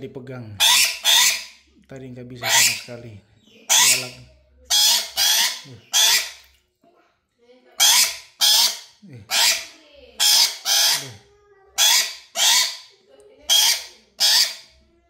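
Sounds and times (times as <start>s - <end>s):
parrot screeching harshly: 0.6s - 1.6s, 2.4s - 2.9s, 3.6s - 6.5s, 7.8s - 11.2s, 11.8s - 12.9s, 13.5s - 14.8s.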